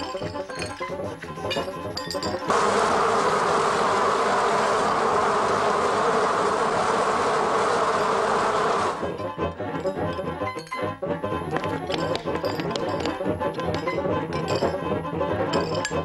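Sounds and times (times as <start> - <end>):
dense steady buzzing: 0.0 - 10.4.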